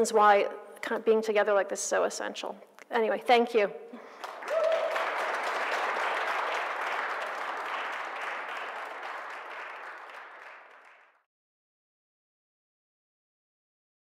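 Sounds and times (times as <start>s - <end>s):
audience applauding: 4.2s - 11.2s.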